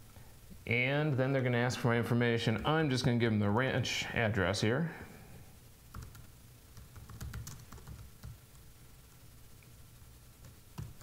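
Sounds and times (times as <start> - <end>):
typing on computer keyboard: 5.9 - 8.4.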